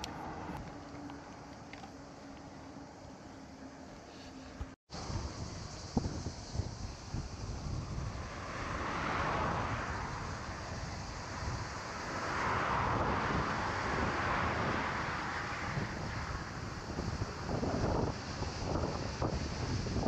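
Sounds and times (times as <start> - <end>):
traffic passing on highway: 0.0 - 20.0
wind on microphone: 5.0 - 20.0.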